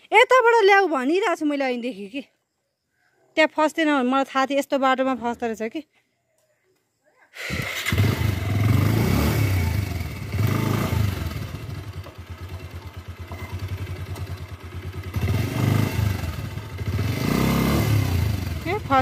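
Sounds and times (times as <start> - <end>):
motorbike engine revving: 7.4 - 19.0.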